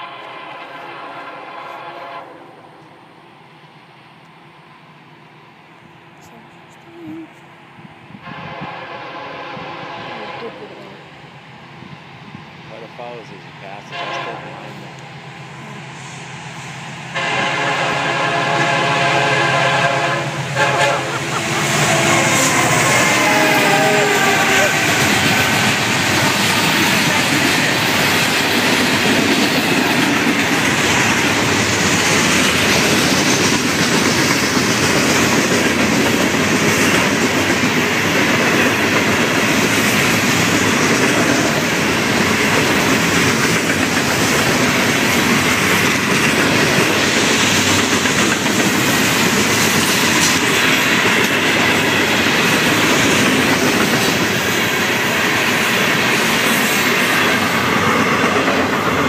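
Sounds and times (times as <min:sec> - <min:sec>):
freight cars rumbling on rails: 0:05.7 - 0:59.0.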